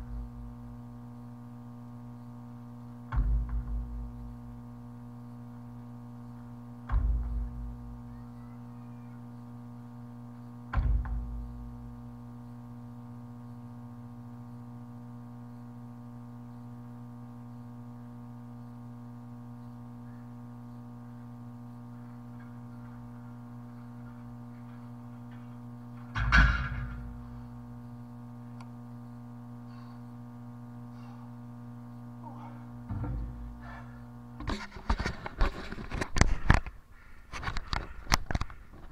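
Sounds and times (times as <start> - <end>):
steady hum: 0.0 - 38.9
tractor tire thudding on concrete: 3.1 - 3.9
steel handles set down: 23.8 - 27.2.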